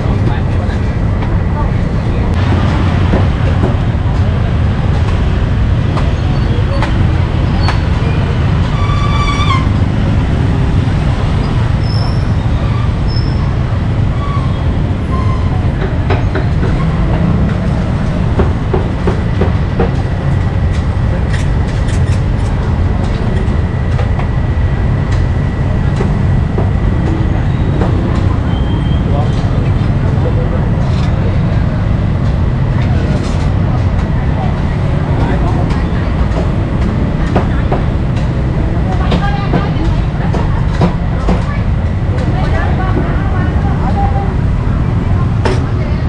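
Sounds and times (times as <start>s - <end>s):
motorbike engines: 0.0s - 46.0s
street traffic rumble: 0.0s - 46.0s.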